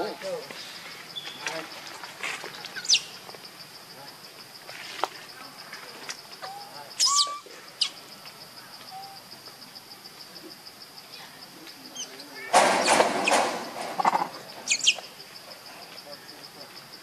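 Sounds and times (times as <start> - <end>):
pulsing insect trill: 0.0 - 17.0
sharp high chirping calls: 2.7 - 3.2, 6.4 - 8.1, 14.7 - 15.1.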